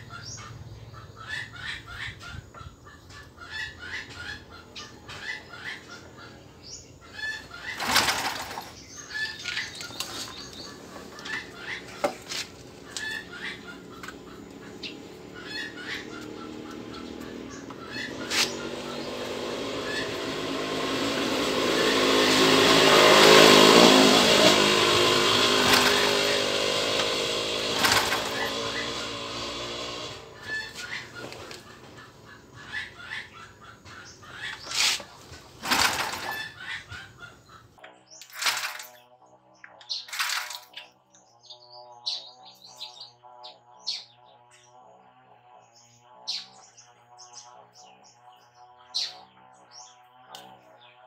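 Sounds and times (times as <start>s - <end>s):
chickens clucking: 0.0s - 38.8s
passing vehicle: 7.7s - 37.6s.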